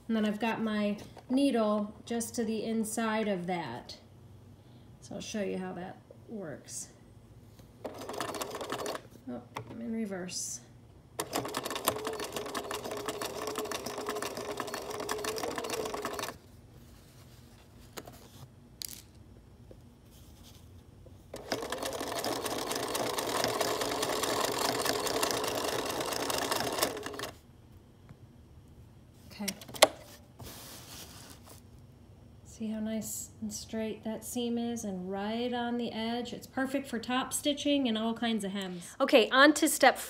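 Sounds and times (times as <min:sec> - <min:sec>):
sewing machine stitching: 0:07.8 - 0:09.1, 0:11.2 - 0:16.4, 0:21.3 - 0:27.4.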